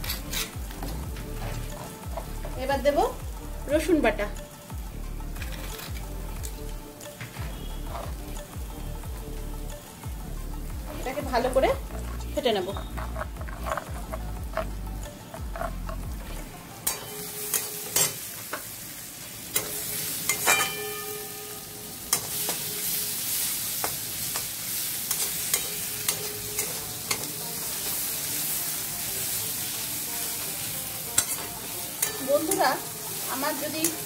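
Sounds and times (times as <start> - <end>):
onions sizzling in a pan: 0.0 - 34.0
spoon whisking in clay bowl: 11.9 - 14.7.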